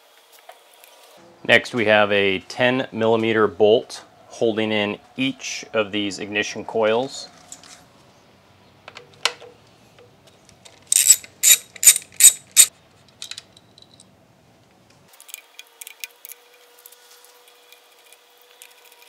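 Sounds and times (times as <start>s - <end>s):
socket ratchet clicking: 10.9s - 12.7s.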